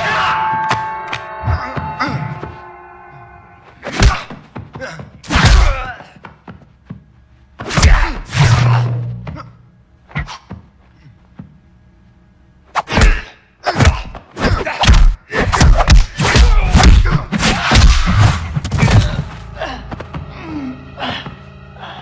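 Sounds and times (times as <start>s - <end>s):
punch and kick impacts: 3.9s - 4.4s, 5.2s - 5.9s, 12.9s - 19.3s.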